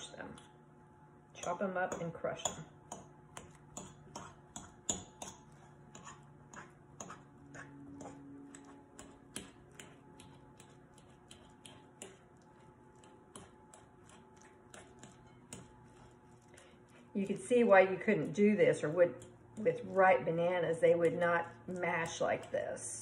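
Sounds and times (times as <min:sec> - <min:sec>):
fork clicking on a bowl: 0:01.4 - 0:16.0, 0:19.1 - 0:19.8.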